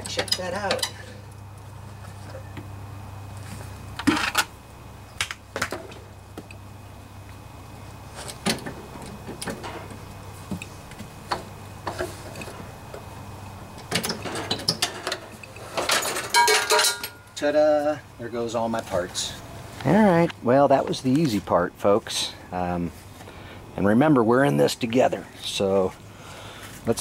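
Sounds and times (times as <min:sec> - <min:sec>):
steady low hum: 0:00.0 - 0:27.0
metallic clunks and rattles: 0:08.3 - 0:10.6, 0:13.8 - 0:17.3.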